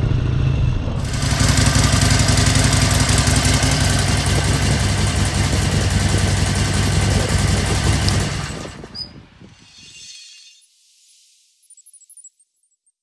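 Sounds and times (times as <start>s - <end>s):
motorcycle engine idling: 1.0s - 9.4s.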